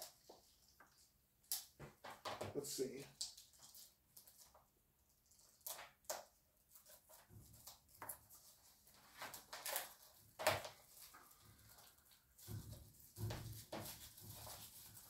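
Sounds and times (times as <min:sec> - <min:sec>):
plastic wrapping crinkling and tearing: 0:06.8 - 0:15.0.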